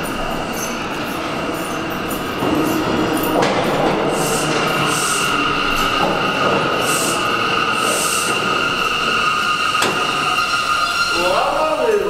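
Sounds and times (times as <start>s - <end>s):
high-pitched brake squeal: 0.0s - 12.0s
subway train rumbling: 0.0s - 12.0s
soft hissing puffs: 4.0s - 5.9s, 6.8s - 8.4s.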